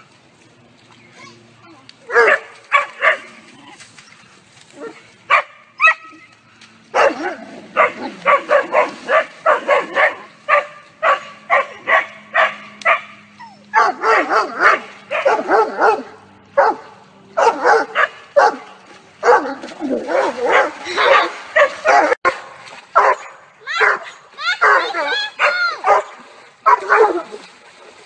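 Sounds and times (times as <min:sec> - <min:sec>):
dogs barking: 0:02.1 - 0:03.4, 0:04.8 - 0:06.2, 0:06.9 - 0:27.4.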